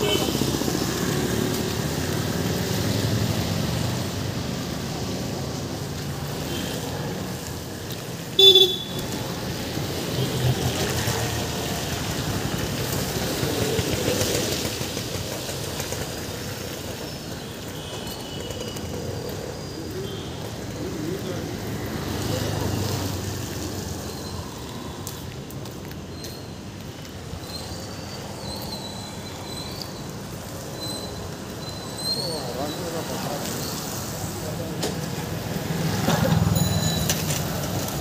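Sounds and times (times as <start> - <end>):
passing traffic: 0.0 - 38.0
vehicle horn toot: 8.4 - 9.0.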